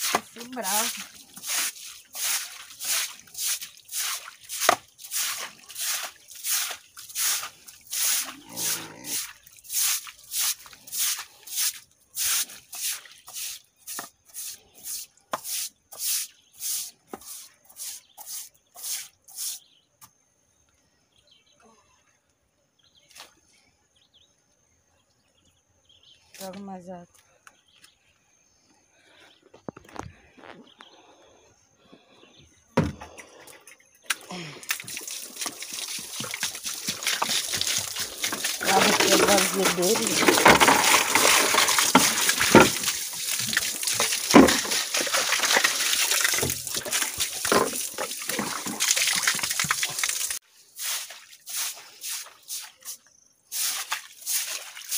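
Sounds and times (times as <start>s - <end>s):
broom sweeping dirt floor: 0.0s - 19.8s, 34.2s - 54.9s.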